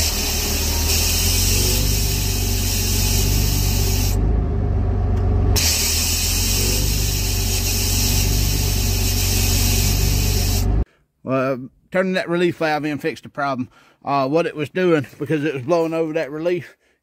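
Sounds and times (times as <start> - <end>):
hydraulic relief valve hissing: 0.0 - 4.2, 5.6 - 10.8
diesel engine running: 0.0 - 10.8.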